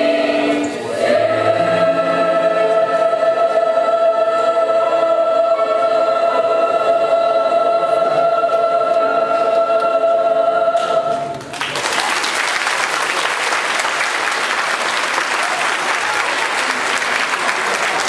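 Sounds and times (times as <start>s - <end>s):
choir holding a chord: 0.0s - 11.4s.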